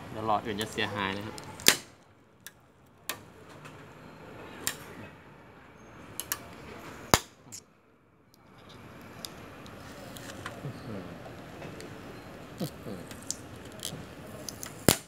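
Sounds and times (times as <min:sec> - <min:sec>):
strips snapping off metal panel: 0:01.6 - 0:01.9.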